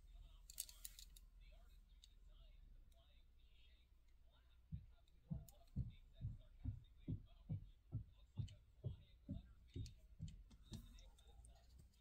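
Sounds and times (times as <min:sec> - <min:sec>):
soft low rhythmic thumps: 0:04.3 - 0:12.0.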